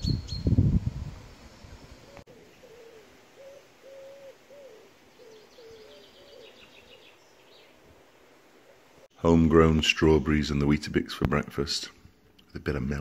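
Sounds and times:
small bird twittering: 0.0 - 0.6, 2.1 - 7.7
pigeon cooing: 2.1 - 6.6.

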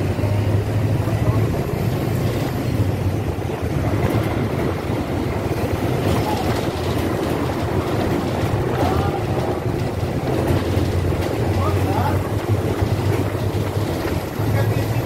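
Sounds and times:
vehicle rumble: 0.0 - 15.0.

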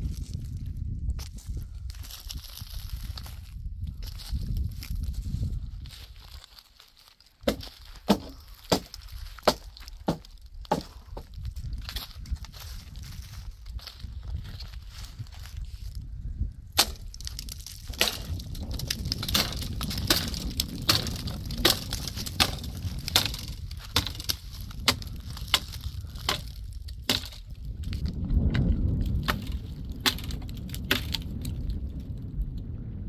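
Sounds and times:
wind gust on microphone: 0.0 - 6.2, 10.5 - 33.0
axe chopping branches: 7.4 - 12.0, 16.8 - 27.5, 28.5 - 31.2.

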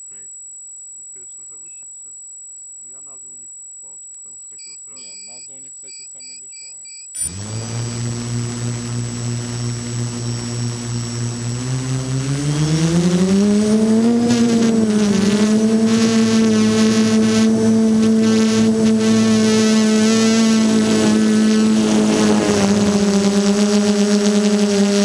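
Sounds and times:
quadcopter motors humming: 4.6 - 6.4, 7.2 - 25.0.

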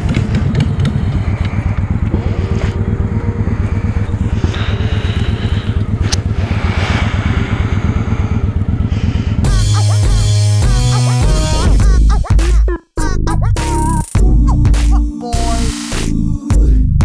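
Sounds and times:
motorcycle engine running: 0.0 - 11.8.

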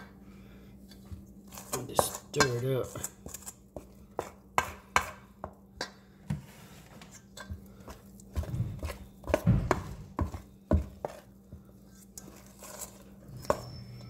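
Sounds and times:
spoon scraping metal bowl: 0.9 - 5.2, 11.9 - 14.0
heavy thuds: 8.5 - 10.2
spoon clinking against bowl: 13.4 - 14.0.

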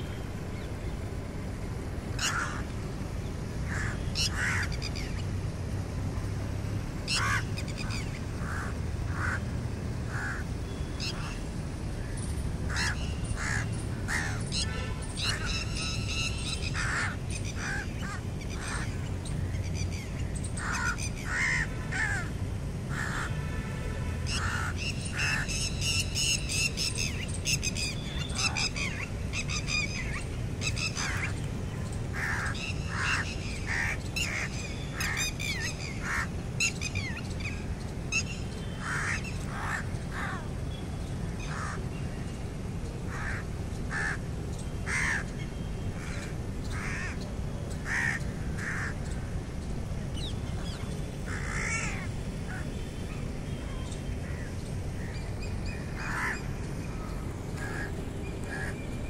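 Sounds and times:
crows cawing: 2.2 - 2.6, 3.7 - 4.7, 8.4 - 9.4, 10.1 - 10.4, 20.6 - 22.3, 22.9 - 23.3, 43.1 - 44.2, 44.9 - 45.2, 47.8 - 49.0, 51.3 - 52.6, 56.0 - 56.4, 57.6 - 58.7.

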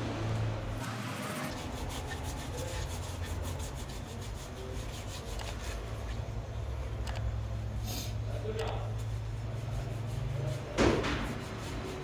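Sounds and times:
brush scrubbing rubber: 1.0 - 6.2, 8.9 - 12.0.

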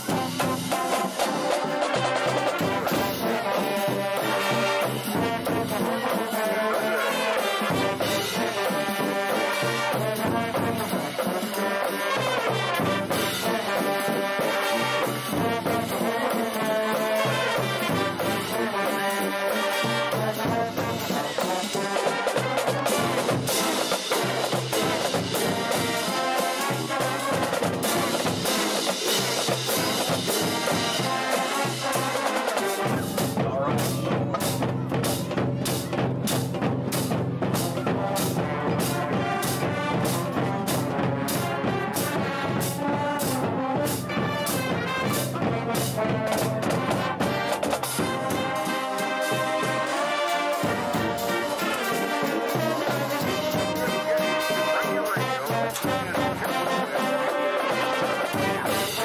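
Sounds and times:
brass horns melody: 0.0 - 35.0, 35.8 - 59.0
cymbals: 0.0 - 59.0
snare drums: 0.0 - 59.0
bass drums: 26.8 - 31.2, 32.8 - 48.6.

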